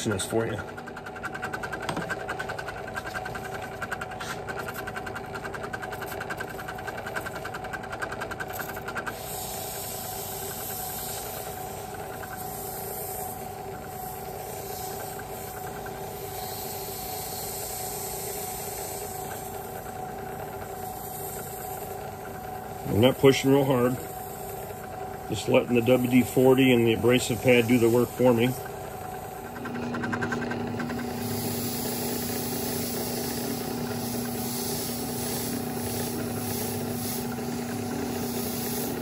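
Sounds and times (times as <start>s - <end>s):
drill press motor hum: 0.0s - 39.0s
abrasive pad scrubbing hiss: 14.0s - 19.6s, 25.3s - 29.6s, 30.3s - 39.0s.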